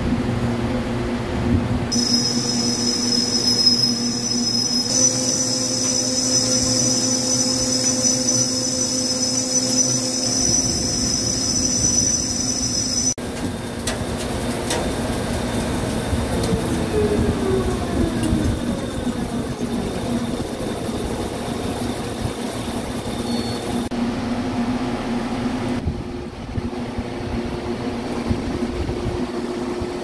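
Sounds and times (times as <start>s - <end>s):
machine hum with high whine: 0.0s - 30.0s
lathe cutting steel: 1.9s - 23.9s.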